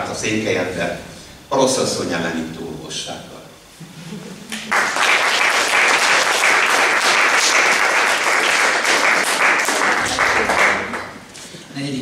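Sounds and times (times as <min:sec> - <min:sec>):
audience applauding: 0:04.6 - 0:11.2.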